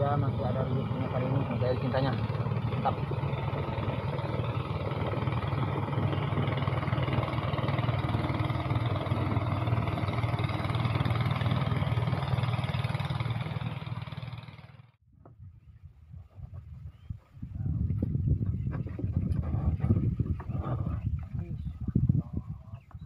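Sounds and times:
small engine humming: 0.0s - 15.0s.

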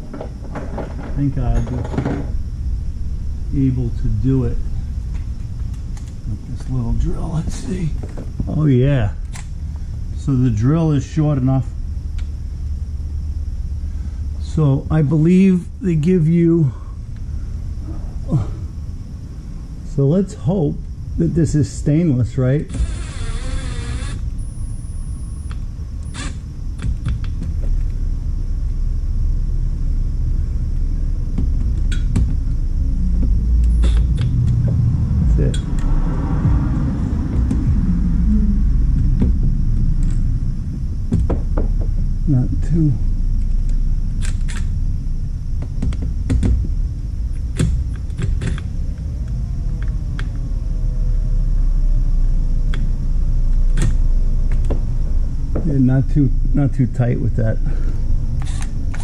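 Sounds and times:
low rumble: 0.0s - 20.1s, 24.2s - 59.0s
drill motor whining: 22.7s - 24.5s, 26.0s - 26.4s, 58.4s - 59.0s.

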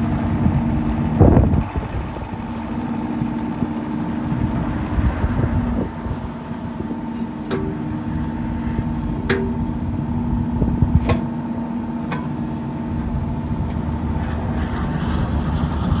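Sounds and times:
diesel engine running: 0.0s - 16.0s
sharp metal clanks: 7.3s - 8.1s, 9.2s - 9.8s.

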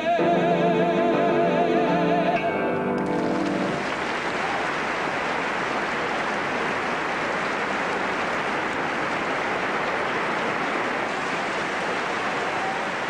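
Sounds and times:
large audience applauding: 3.0s - 13.0s.

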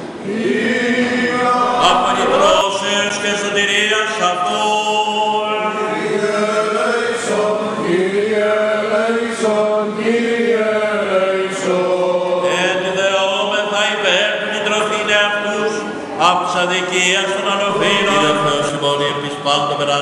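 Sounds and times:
low vocal drone: 0.2s - 4.2s, 17.5s - 19.1s
men chanting: 0.3s - 3.5s, 17.4s - 18.8s.

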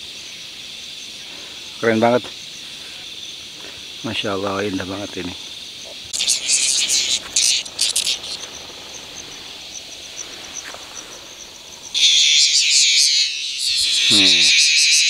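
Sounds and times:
cicadas buzzing: 0.0s - 15.0s.

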